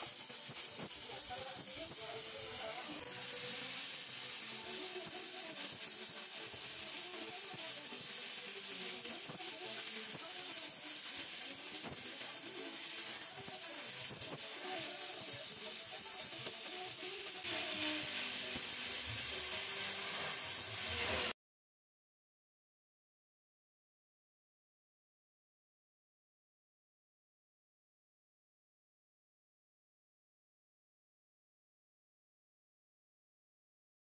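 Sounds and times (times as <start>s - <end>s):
welding torch flame hissing: 0.0s - 21.4s.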